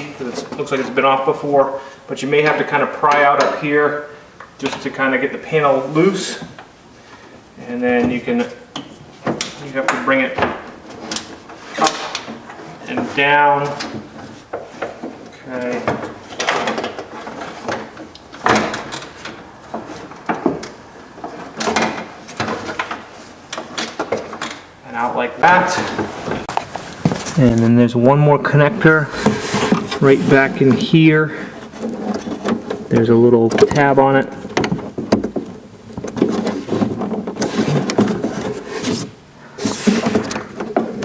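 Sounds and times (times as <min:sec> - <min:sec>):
metal clunks and rattles: 0:07.9 - 0:24.7, 0:28.8 - 0:41.0
hands scraping on plastic panel: 0:29.1 - 0:33.2.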